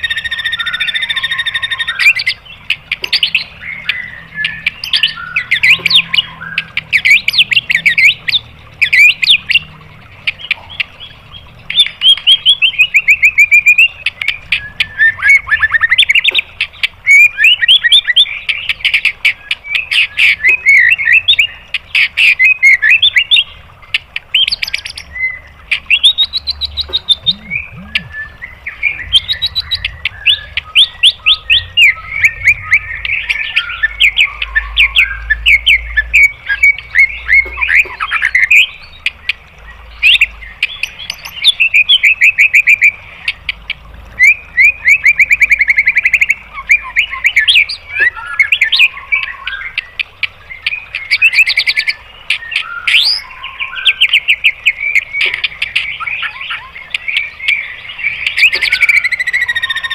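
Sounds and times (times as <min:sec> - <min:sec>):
songbird singing rapid notes: 0:00.0 - 0:59.9.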